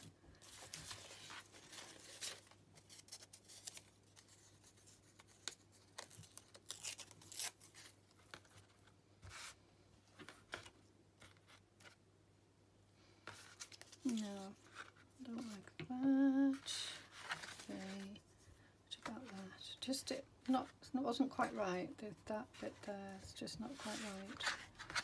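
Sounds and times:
paper rustling and scratching: 0.0 - 9.6, 16.5 - 18.2, 22.5 - 25.0.

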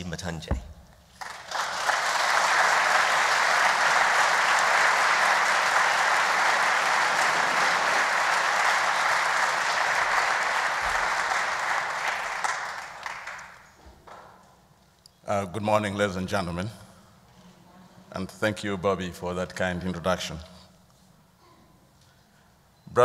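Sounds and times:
audience applauding: 1.1 - 14.2.

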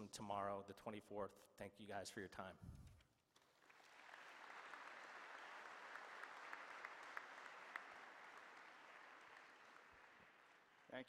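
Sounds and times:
audience applause: 3.5 - 11.0.

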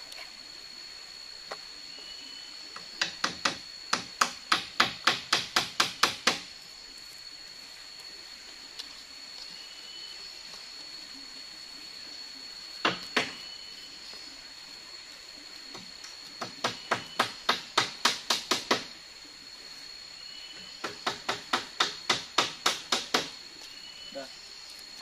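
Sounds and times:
high insect drone: 0.0 - 25.0
hammering on bamboo: 3.0 - 6.5, 12.8 - 13.4, 15.7 - 18.9, 20.8 - 23.4.

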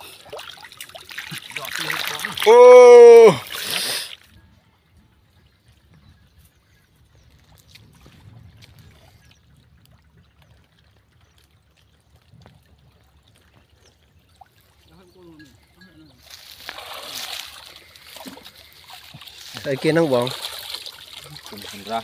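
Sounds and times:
water splash: 0.0 - 4.1, 16.3 - 22.0
sloshing and trickling water: 0.0 - 22.0
loud call: 2.4 - 3.4.

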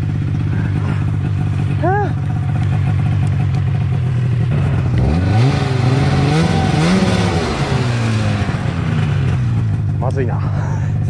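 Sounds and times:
snowmobile engine revving: 4.5 - 9.8.

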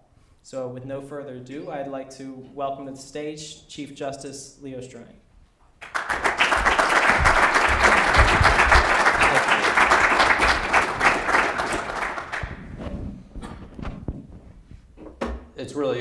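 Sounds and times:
audience applauding: 5.8 - 12.8.

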